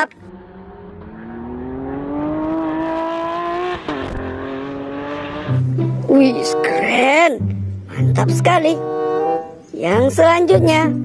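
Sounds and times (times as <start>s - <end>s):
car engine accelerating hard: 0.1s - 7.8s.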